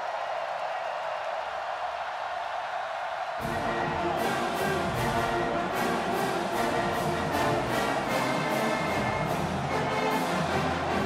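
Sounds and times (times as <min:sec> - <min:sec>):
marching band brass: 0:03.4 - 0:11.0.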